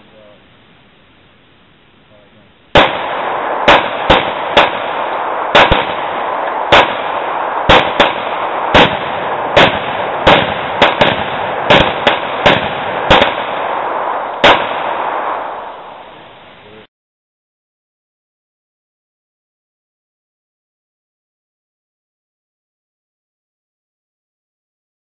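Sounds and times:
steady loud hiss: 0.0 - 16.9
gunshots: 2.7 - 16.4.

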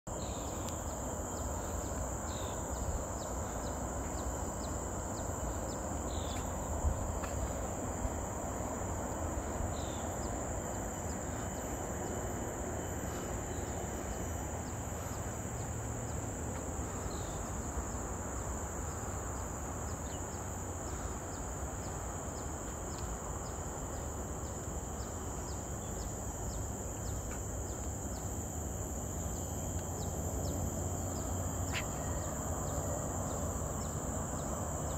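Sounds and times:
high-pitched insect drone: 0.1 - 34.9
faint chirps: 29.2 - 34.5.

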